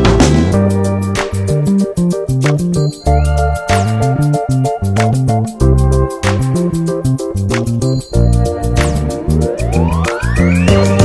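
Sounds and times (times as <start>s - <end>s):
electronic music with bass and beat: 0.0s - 11.0s
synth sweep rising in pitch: 8.4s - 11.0s.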